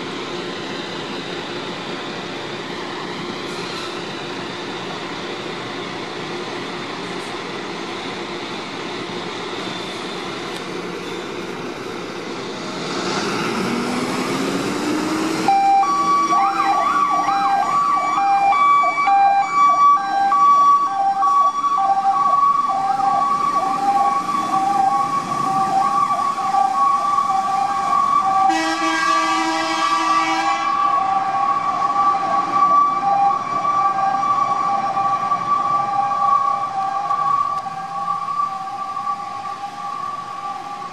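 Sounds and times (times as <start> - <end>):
two-tone sirens: 0.0 - 40.9
diesel engine revving: 12.3 - 17.3
air horns blasting: 28.4 - 31.1.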